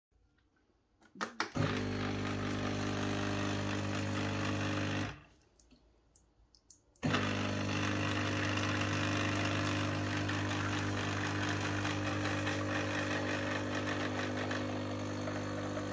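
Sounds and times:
espresso machine pump humming: 1.6 - 5.2, 7.0 - 15.9.

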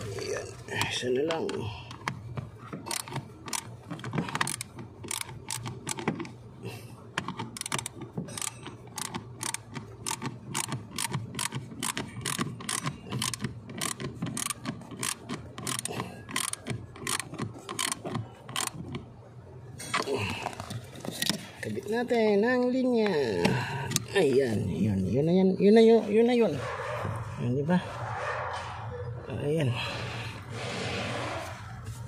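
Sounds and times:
hand ratchet clicking: 2.8 - 6.4, 7.2 - 19.0.

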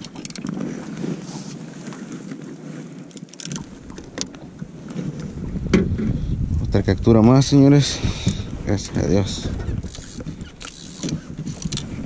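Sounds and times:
wind buffeting microphone: 3.6 - 12.0.

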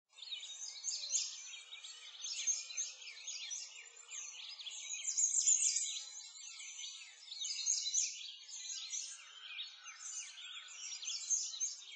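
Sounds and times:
small birds chirping and singing: 0.1 - 11.9.

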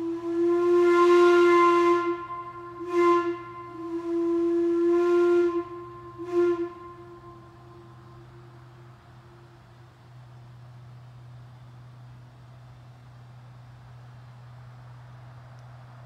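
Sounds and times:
steam whistle blasts: 0.0 - 9.6.

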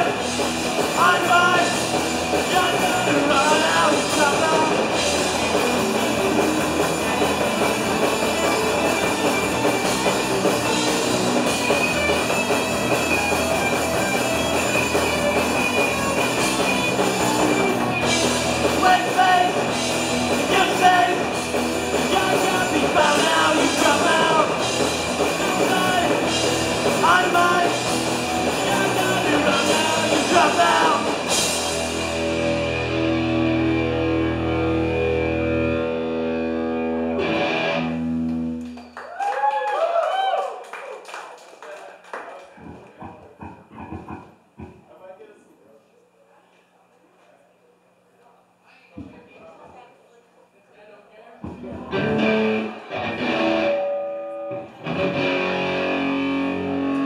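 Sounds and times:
punk band playing live: 0.0 - 38.7, 51.4 - 57.0
person singing lead vocal: 0.9 - 5.0, 18.7 - 19.7, 20.4 - 31.3.

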